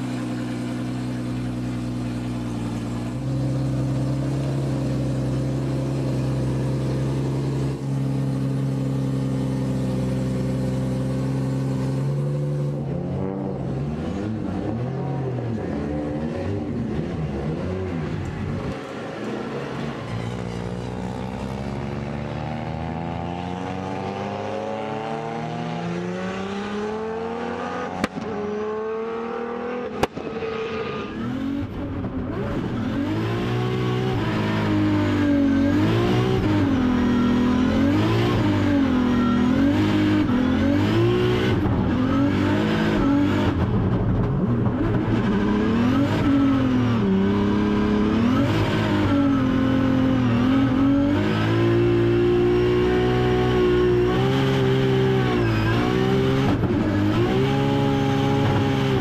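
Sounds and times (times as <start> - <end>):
car engine revving hard: 22.6 - 43.7, 44.6 - 59.0.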